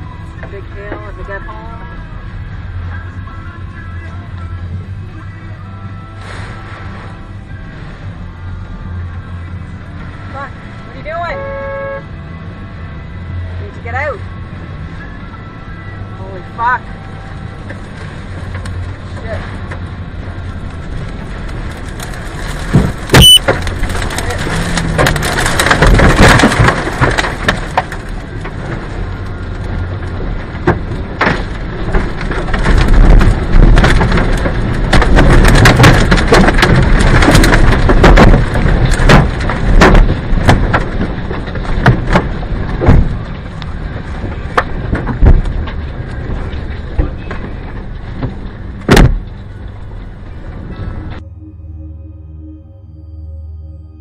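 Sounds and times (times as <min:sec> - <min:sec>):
wind and rain roaring on a car: 0:00.0 - 0:51.2
debris knocking on a car: 0:21.4 - 0:28.9, 0:30.5 - 0:49.6.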